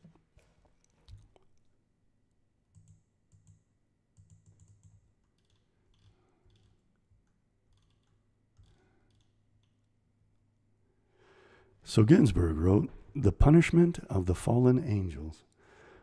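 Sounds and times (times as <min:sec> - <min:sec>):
computer mouse and keyboard clicks: 0:02.7 - 0:09.8.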